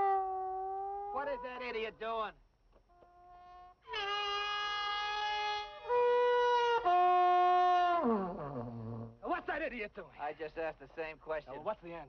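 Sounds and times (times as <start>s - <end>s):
bugle held notes: 0.0s - 2.1s, 2.9s - 7.7s.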